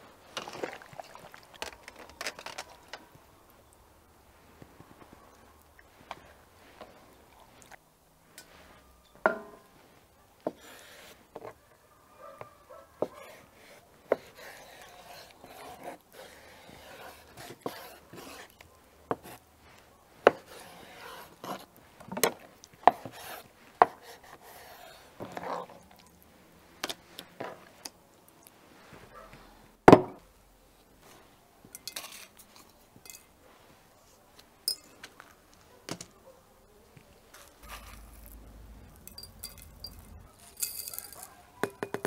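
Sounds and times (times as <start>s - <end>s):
glass jars tapping: 9.1s - 9.7s, 33.0s - 33.3s, 34.7s - 35.1s, 39.0s - 42.0s
metal bowls clinking: 31.7s - 33.3s, 34.7s - 35.1s, 37.6s - 42.0s.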